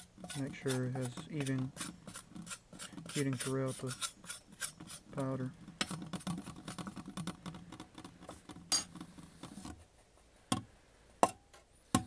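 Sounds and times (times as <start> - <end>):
glass rod scraping powder in steel pot: 0.0 - 6.0.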